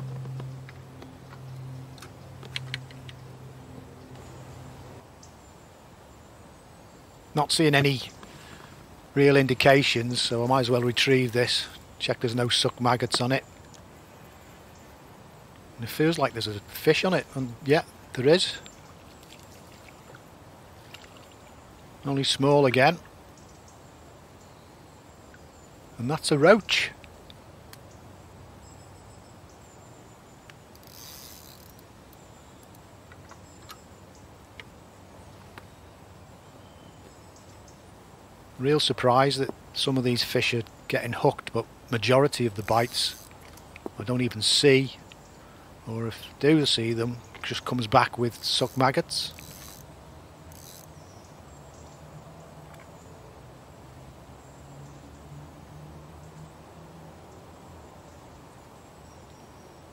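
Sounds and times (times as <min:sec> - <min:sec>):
light hiss: 0:00.0 - 0:53.1
faint riverside background noise: 0:00.0 - 0:59.9
fishing reel clicks: 0:30.7 - 0:32.8, 0:42.7 - 0:43.7, 0:48.3 - 0:49.9, 0:50.5 - 0:51.0.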